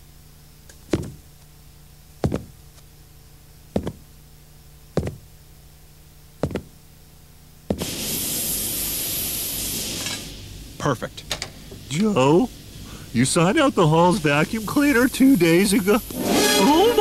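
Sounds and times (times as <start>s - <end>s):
cartoon thuds of hopping steps: 0.9s - 1.2s, 2.2s - 2.6s, 3.8s - 4.0s, 5.0s - 5.3s, 6.4s - 6.8s
welding torch hiss: 7.7s - 17.0s.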